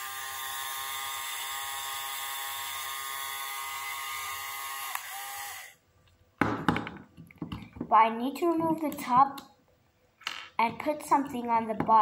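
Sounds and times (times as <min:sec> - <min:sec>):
motor whining: 0:00.0 - 0:05.8.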